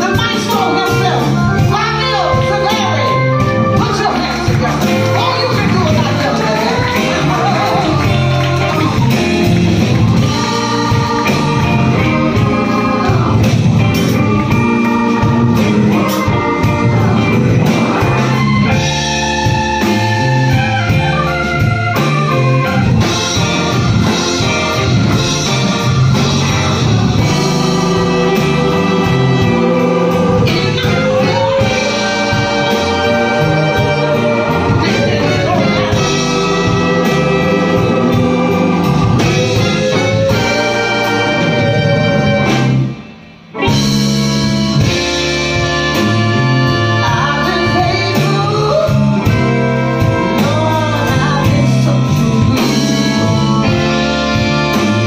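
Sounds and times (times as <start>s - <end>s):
voices singing: 0.0s - 42.8s
electric bass: 0.0s - 55.0s
keyboards: 0.0s - 55.0s
live band playing: 0.0s - 55.0s.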